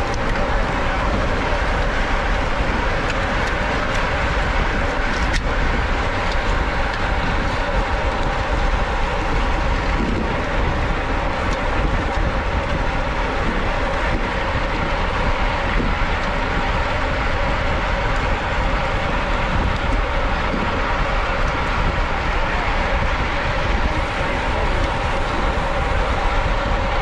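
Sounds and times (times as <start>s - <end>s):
bicycle tyre and road noise: 0.0s - 27.0s
wind on microphone: 0.0s - 27.0s.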